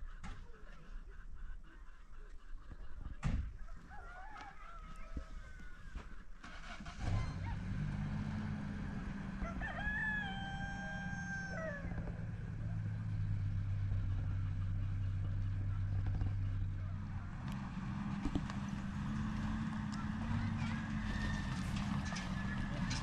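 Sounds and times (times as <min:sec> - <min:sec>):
rooster crowing: 0:03.7 - 0:06.0, 0:09.3 - 0:12.2.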